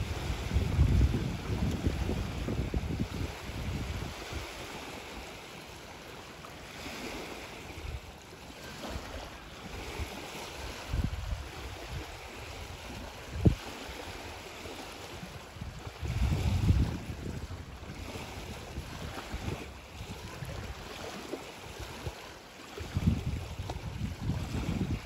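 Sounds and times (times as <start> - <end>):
wind buffeting microphone: 0.0 - 4.8, 9.7 - 14.4, 15.0 - 20.9, 22.8 - 25.0
distant outboard motor boat: 0.0 - 25.0.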